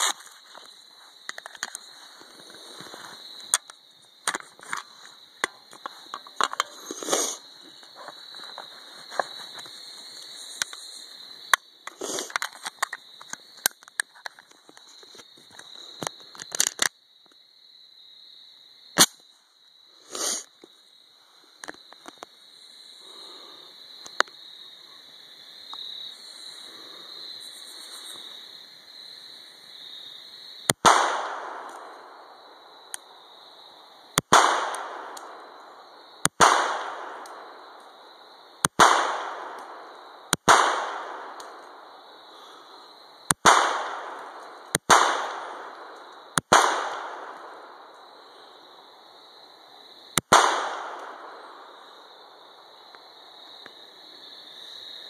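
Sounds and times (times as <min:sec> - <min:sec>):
pistol shots with echo: 0:30.8 - 0:32.2, 0:34.3 - 0:35.4, 0:36.4 - 0:37.6, 0:38.8 - 0:39.8, 0:40.4 - 0:41.4, 0:43.4 - 0:47.7, 0:50.3 - 0:51.4.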